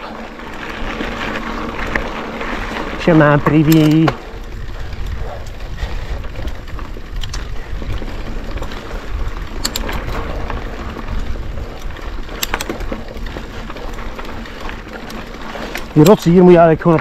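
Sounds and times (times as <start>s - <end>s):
bike rattling over stones: 0.0s - 17.0s
tyres rolling over gravel and rock: 0.0s - 17.0s
wind on microphone: 4.1s - 14.5s.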